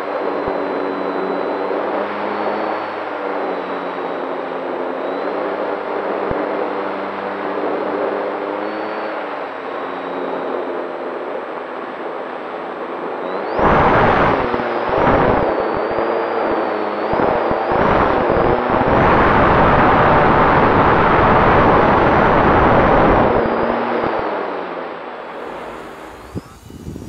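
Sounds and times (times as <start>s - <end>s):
model plane motor whine: 0.0s - 11.0s, 13.3s - 24.2s, 25.2s - 27.0s
wind buffeting microphone: 25.5s - 27.0s.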